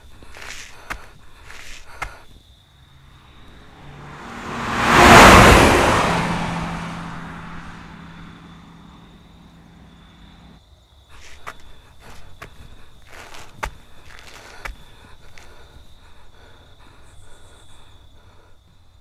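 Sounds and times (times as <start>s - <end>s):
footsteps on gravel: 0.0s - 2.3s, 11.2s - 15.7s
steady engine hum: 0.0s - 19.0s
car passing by: 2.9s - 10.6s.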